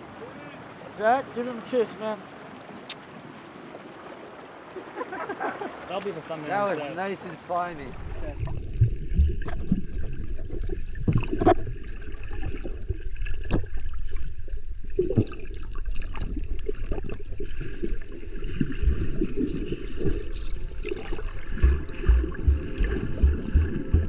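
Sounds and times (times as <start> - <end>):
muffled underwater sloshing rumble: 7.8 - 24.0.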